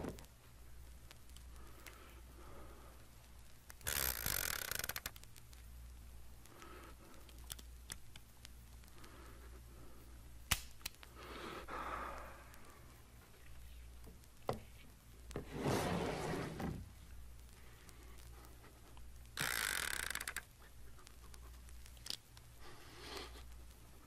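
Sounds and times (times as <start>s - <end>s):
steady low hum: 0.0s - 4.2s, 4.8s - 19.4s, 20.3s - 24.0s
sharp clicks: 3.4s - 5.7s, 17.4s - 22.5s.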